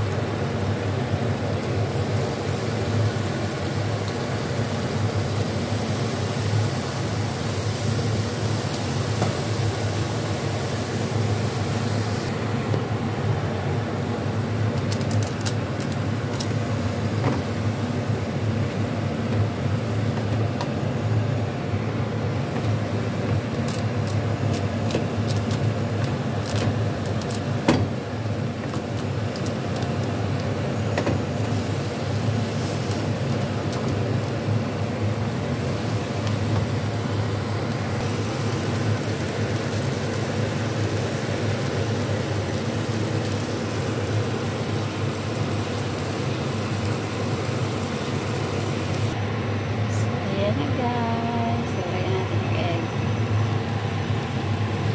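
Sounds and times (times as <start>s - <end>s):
noodles cooking in broth: 0.0s - 50.0s, 52.2s - 54.9s
steady low hum: 47.4s - 54.9s.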